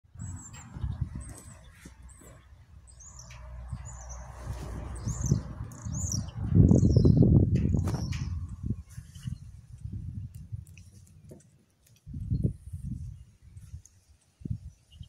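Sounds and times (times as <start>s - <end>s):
low rumbling noise: 0.1s - 10.7s
small birds chirping: 0.1s - 15.0s.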